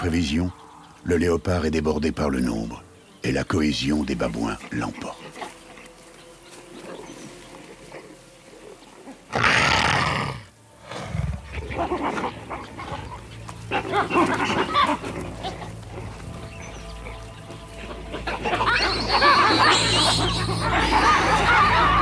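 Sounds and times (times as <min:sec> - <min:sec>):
baboons calling: 0:03.6 - 0:22.0
leopard snarling and growling: 0:06.8 - 0:17.2.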